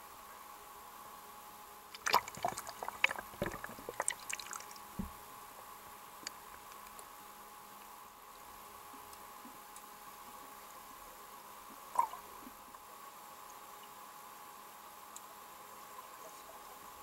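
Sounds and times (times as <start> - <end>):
air bubbles gurgling underwater: 2.0 - 5.2.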